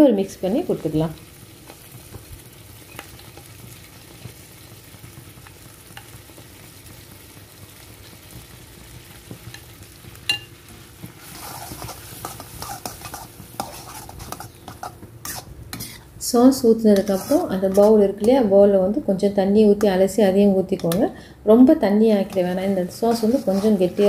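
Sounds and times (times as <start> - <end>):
vegetables sizzling in a pan: 0.0 - 19.9, 22.0 - 24.0
metal spoon stirring in a pan: 10.3 - 16.1, 16.9 - 18.5, 22.2 - 24.0
sauce scraped from a bowl: 11.2 - 16.1, 17.0 - 18.0.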